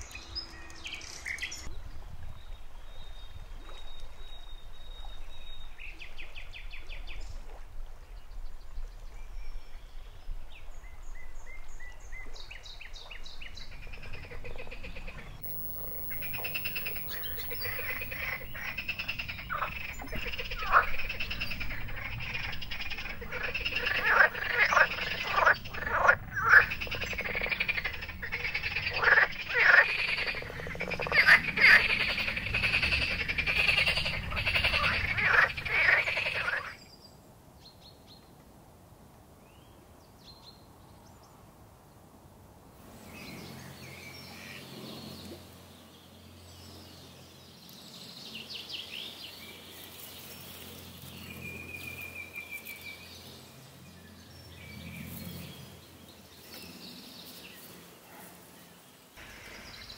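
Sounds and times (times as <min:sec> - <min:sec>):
frogs croaking in chorus: 0:13.6 - 0:36.8
loud individual frog calls: 0:13.6 - 0:36.8
short trilling bird calls: 0:13.8 - 0:36.8.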